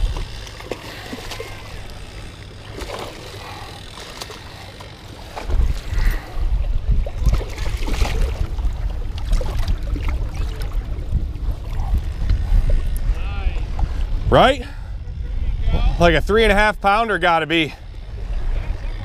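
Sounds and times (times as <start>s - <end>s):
small water splashes: 0.0s - 2.0s, 2.6s - 6.4s, 7.0s - 12.0s
wind rumble on microphone: 0.0s - 2.2s, 5.2s - 19.0s.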